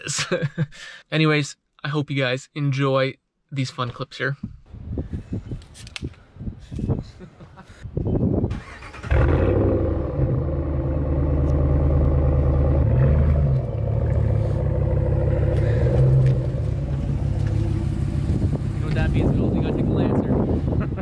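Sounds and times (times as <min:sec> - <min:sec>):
engine idling through exhaust: 0:09.2 - 0:19.3.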